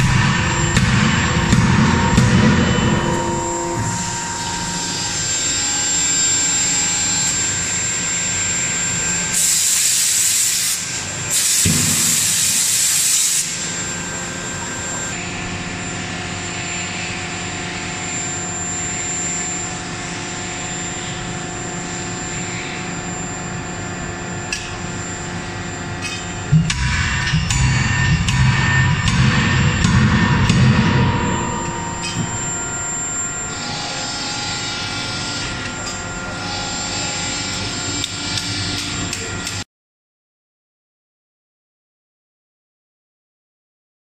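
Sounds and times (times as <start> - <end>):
sharp knock: 0.0 - 4.0, 11.6 - 12.6
hydraulic unit humming and whining: 0.0 - 39.6
hydraulic hissing bursts: 9.4 - 13.6.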